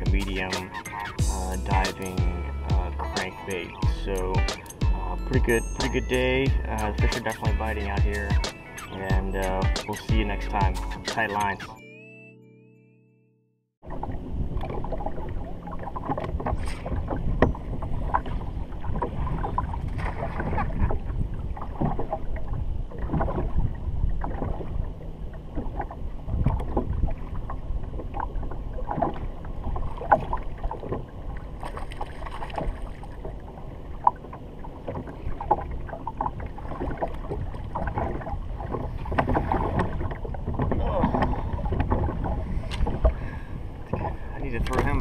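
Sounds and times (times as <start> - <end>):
wind on microphone: 13.8 - 32.9, 35.2 - 45.0
water slapping against boat hull: 13.8 - 45.0.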